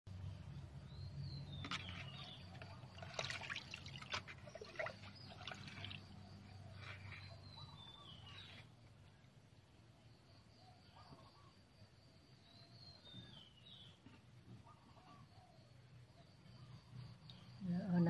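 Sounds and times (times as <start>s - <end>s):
water splashing in plastic bucket: 1.6s - 6.2s.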